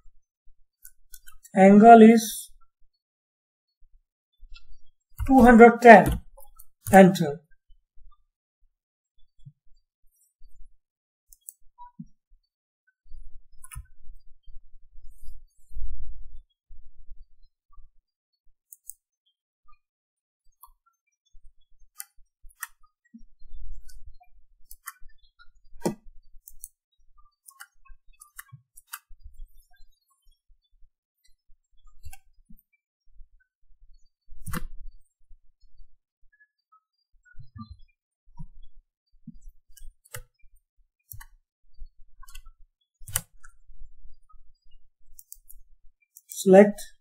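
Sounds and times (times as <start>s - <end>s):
mouse and keyboard clicks: 13.6s - 13.9s, 24.7s - 25.1s, 25.8s - 26.8s, 27.5s - 29.1s, 34.4s - 34.8s, 39.7s - 40.3s, 41.1s - 41.4s, 42.2s - 43.6s, 45.1s - 46.4s
mouse button clicks: 42.2s - 43.6s.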